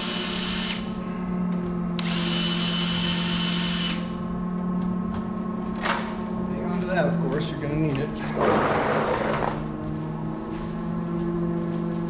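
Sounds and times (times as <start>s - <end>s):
power drill running: 0.0s - 1.0s, 2.0s - 4.2s
steady low hum: 0.0s - 12.0s.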